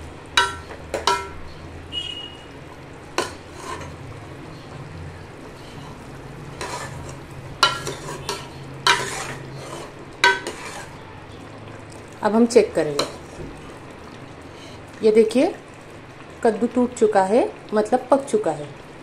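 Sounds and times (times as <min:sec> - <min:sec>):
curry sizzling: 0:00.0 - 0:19.0
ladle clinking on pot: 0:00.4 - 0:01.4, 0:06.6 - 0:11.0
metal ladle stirring curry: 0:00.4 - 0:01.6, 0:03.1 - 0:04.0, 0:05.5 - 0:11.0.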